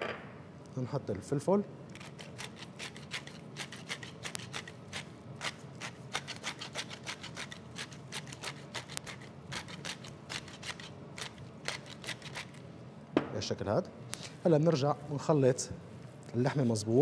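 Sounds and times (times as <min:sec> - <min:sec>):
pepper mill grinding: 0:01.9 - 0:12.6.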